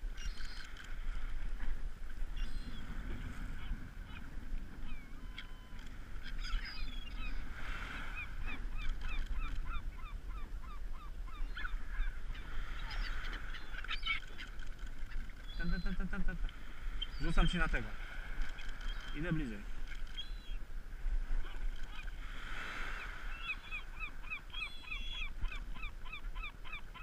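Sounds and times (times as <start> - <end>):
wind rumble on microphone: 0.0 - 17.5
gulls calling: 2.2 - 27.0.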